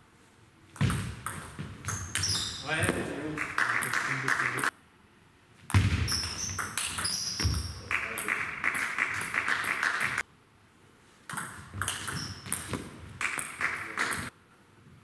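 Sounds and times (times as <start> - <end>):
sports hall background noise: 0.0 - 15.0
table tennis ball knocking: 11.3 - 14.3.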